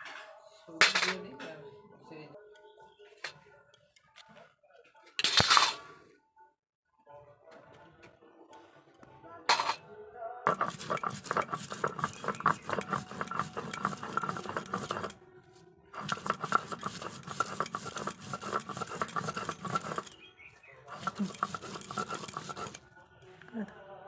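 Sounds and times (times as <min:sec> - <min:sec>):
stone scraping on stone: 0:10.5 - 0:15.2, 0:16.0 - 0:20.2, 0:20.9 - 0:22.8.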